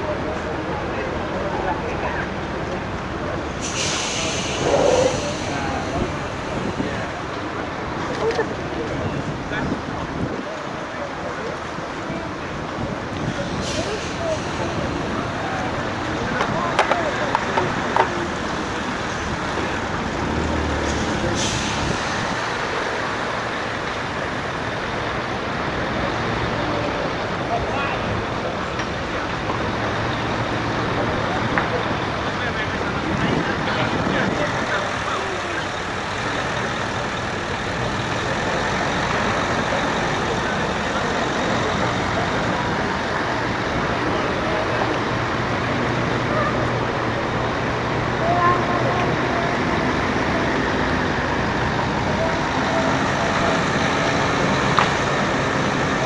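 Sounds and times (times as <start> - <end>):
truck passing slowly: 0.0 - 56.0
short hiss: 3.6 - 5.6.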